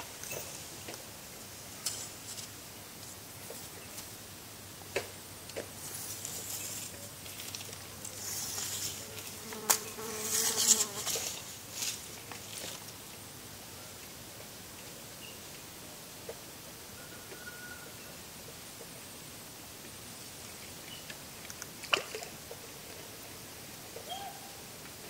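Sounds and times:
insect buzzing: 8.2 - 11.9.

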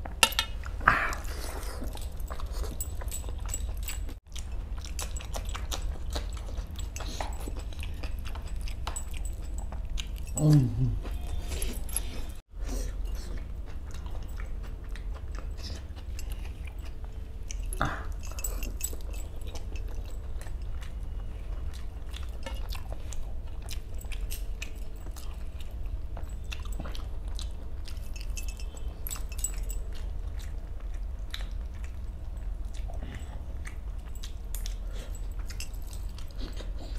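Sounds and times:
low steady hum: 0.0 - 36.9
person chewing and smacking: 0.0 - 36.9.

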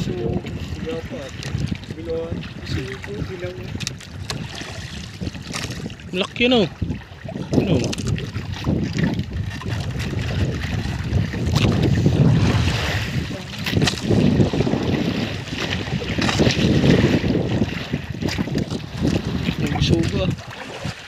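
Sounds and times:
water washing against boat hull: 0.0 - 21.0
wind buffeting microphone: 0.0 - 21.0
knocks and rustles of fishing line: 3.7 - 6.4, 7.4 - 12.0, 13.6 - 14.3, 15.5 - 17.1, 17.7 - 21.0.

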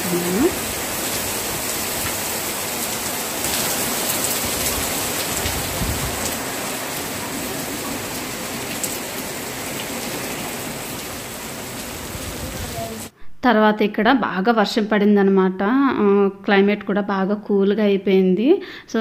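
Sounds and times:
heavy rain falling: 0.0 - 13.1.

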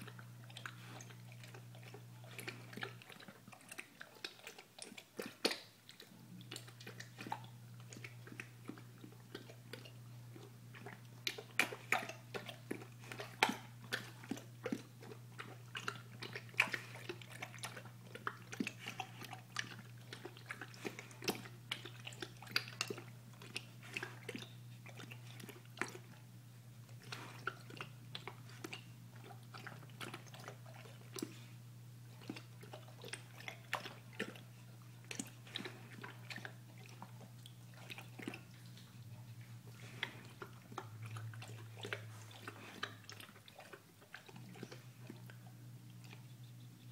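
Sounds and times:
dog lapping and chewing: 0.0 - 46.9
steady low hum: 0.0 - 46.9.

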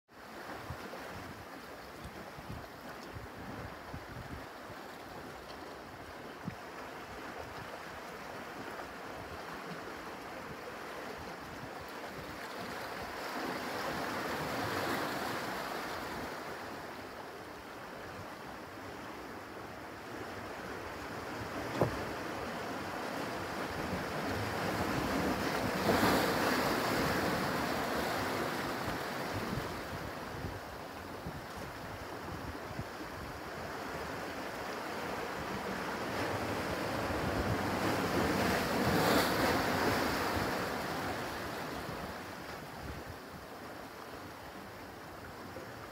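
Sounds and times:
waves washing on rocky shore: 20.8 - 31.2, 33.0 - 43.3.

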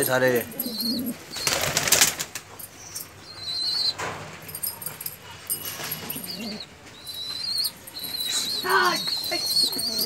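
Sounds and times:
pigeon wings flapping: 1.4 - 2.4.

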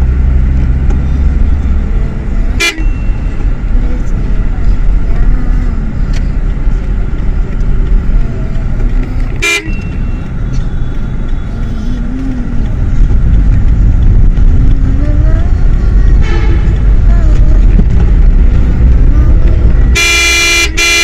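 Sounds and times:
motorcycle engine and wind rumble: 0.0 - 20.8
horn toot: 20.0 - 21.0.

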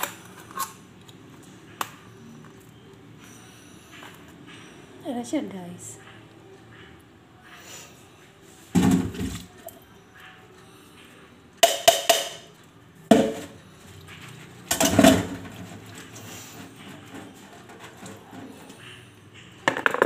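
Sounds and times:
dishes knocking and clinking: 11.6 - 12.5, 13.1 - 13.6, 14.7 - 15.9, 19.6 - 20.0.

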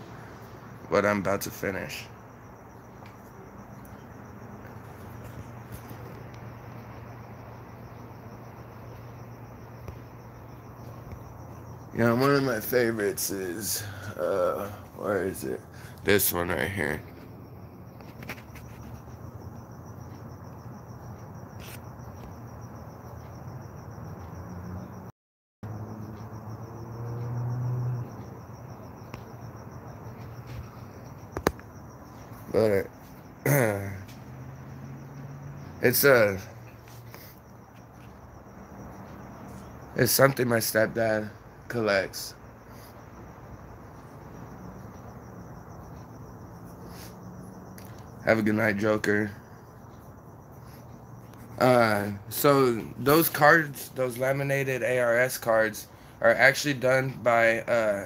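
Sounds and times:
crickets chirping: 0.0 - 58.0
room hum and hiss: 26.1 - 58.0.

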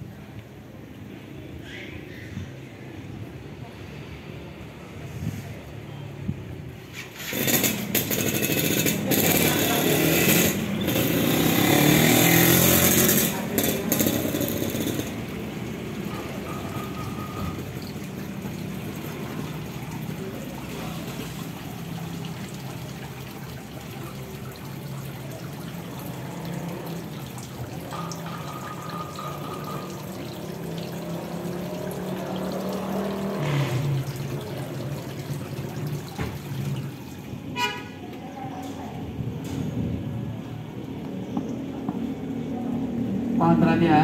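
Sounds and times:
water trickling into pond: 6.2 - 39.5.

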